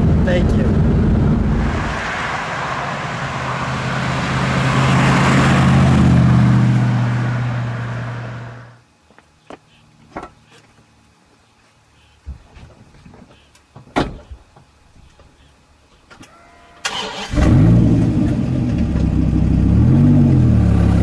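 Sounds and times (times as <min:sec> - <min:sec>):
car engine hum driving past: 0:00.7 - 0:08.8.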